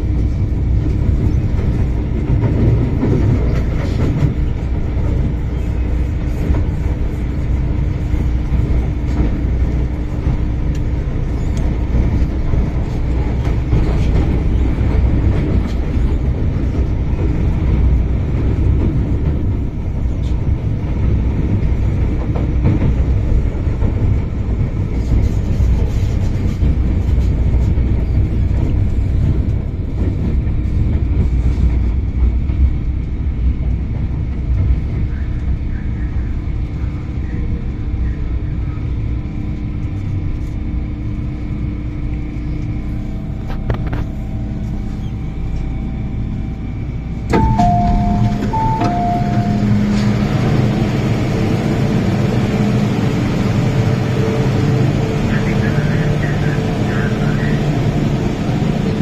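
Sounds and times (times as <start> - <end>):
train rumble inside carriage: 0.0 - 59.0
two-tone door chime: 47.3 - 50.3.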